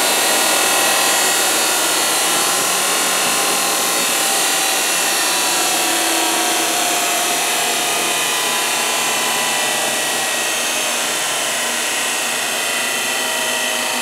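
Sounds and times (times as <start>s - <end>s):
grinder machine whine and hiss: 0.0s - 14.0s.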